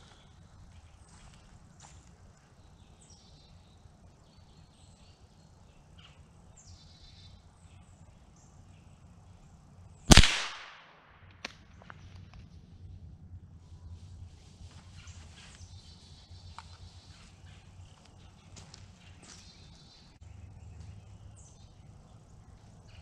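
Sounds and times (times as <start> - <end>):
rifle shot: 10.1 - 11.6.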